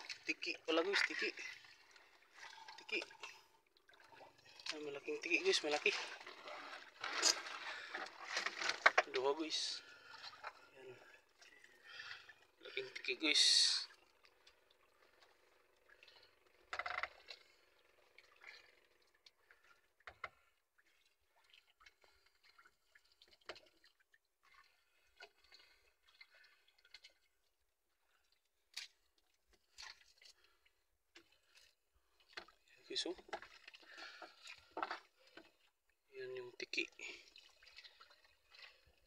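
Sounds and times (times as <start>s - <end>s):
soft water drips: 0.0s - 8.4s, 9.0s - 39.0s
wet net rustling: 6.0s - 9.0s.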